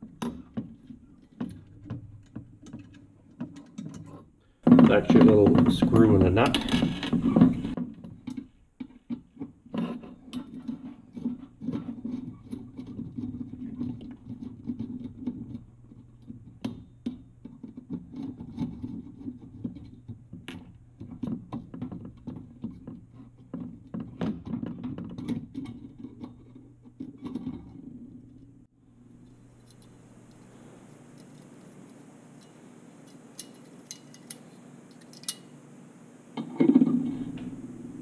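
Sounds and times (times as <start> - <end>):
low steady hum: 25.2 - 38.0
screwdriver clicks and metal scrapes: 29.2 - 35.6.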